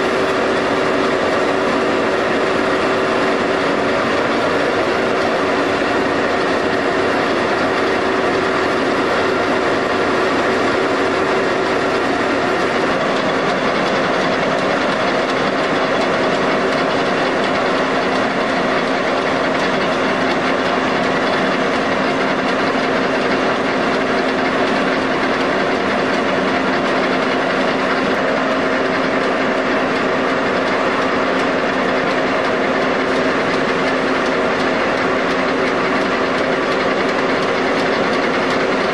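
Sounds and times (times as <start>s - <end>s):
machine hum: 0.0s - 38.9s
machine rollers and gears clattering: 0.0s - 38.9s.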